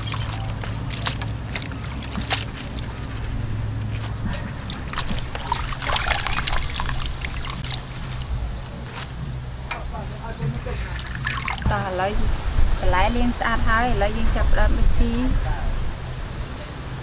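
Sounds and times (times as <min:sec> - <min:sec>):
water splashing in a metal basin: 0:00.0 - 0:08.3, 0:10.8 - 0:11.8
steady low hum: 0:00.0 - 0:17.0.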